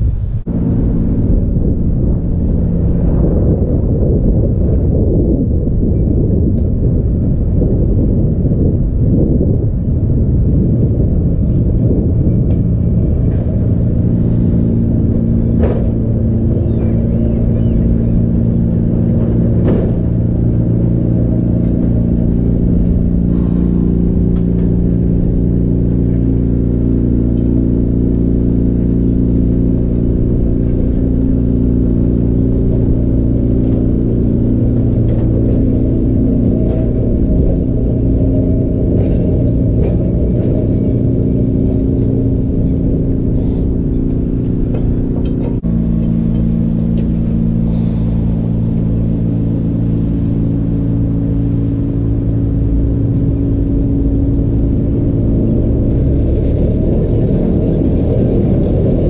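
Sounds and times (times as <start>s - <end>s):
heavy low rumble: 0.0s - 59.0s
tram motor hum: 0.0s - 59.0s.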